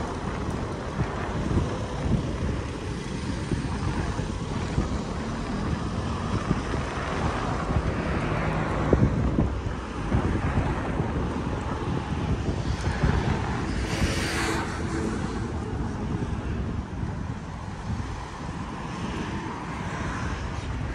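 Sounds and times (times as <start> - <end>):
street traffic: 0.0 - 20.9
wind buffeting microphone: 0.0 - 20.9
vehicle passing: 1.4 - 17.2.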